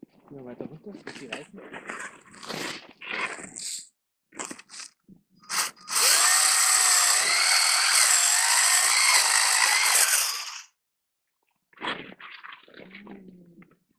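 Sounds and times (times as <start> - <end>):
tyres scratching on ice: 1.1 - 5.0
electric motor whining: 5.5 - 10.7.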